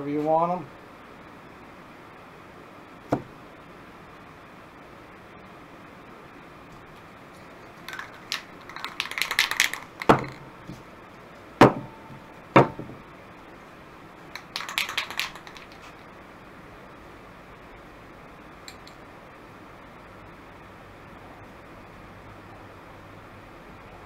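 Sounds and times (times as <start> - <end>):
spray-paint can rattling: 7.4 - 10.6, 14.3 - 16.1
cans knocking on workbench: 10.0 - 10.4, 11.6 - 13.0.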